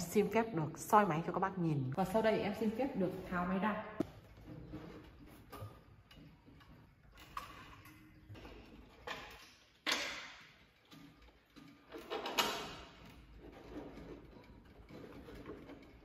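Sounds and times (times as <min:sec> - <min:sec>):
handling knocks and clicks: 0:04.0 - 0:16.0.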